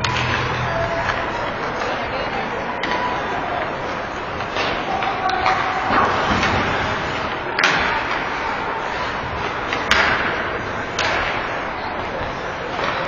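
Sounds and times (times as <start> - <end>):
stick hitting puck: 0.0 - 2.0, 4.4 - 8.4, 9.3 - 11.6
arena noise: 0.0 - 13.0.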